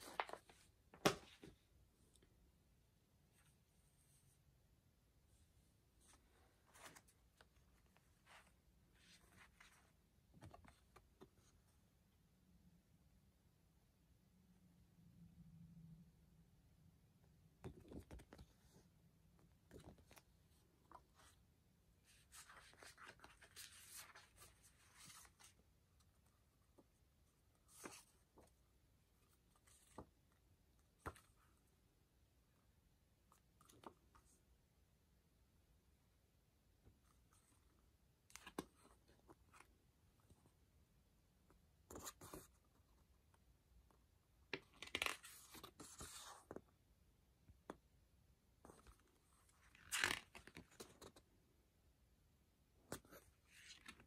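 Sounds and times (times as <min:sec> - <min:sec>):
paper cards rustling and sliding: 0:00.0 - 0:01.5, 0:22.0 - 0:25.6, 0:27.6 - 0:28.5.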